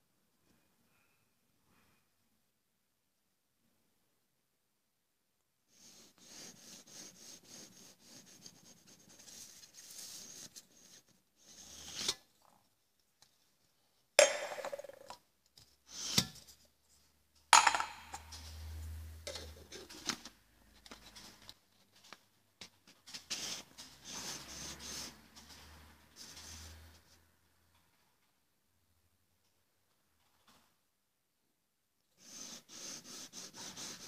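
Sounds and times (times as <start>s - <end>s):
aluminium can sliding and rubbing: 11.4s - 12.3s
metallic knocks of cans set down: 14.2s - 15.2s, 17.6s - 18.4s.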